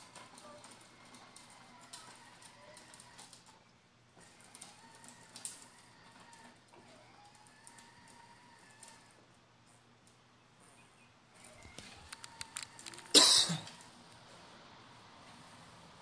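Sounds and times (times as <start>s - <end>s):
toy electric motor whine: 0.1s - 3.4s, 4.2s - 9.2s.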